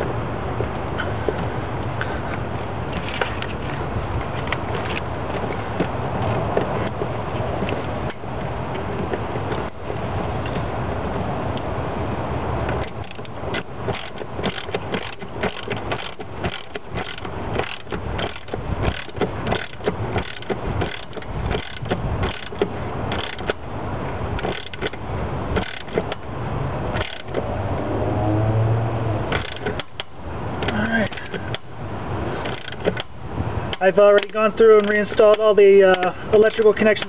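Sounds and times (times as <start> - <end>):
ratchet wrench clicking: 12.8 - 23.6, 24.4 - 25.0, 25.6 - 26.2, 27.0 - 27.4, 29.3 - 31.7, 32.4 - 33.1.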